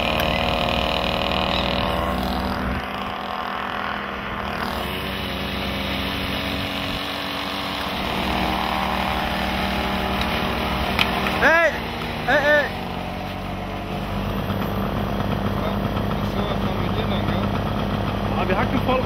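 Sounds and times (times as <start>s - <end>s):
moped engines running: 0.0s - 19.0s.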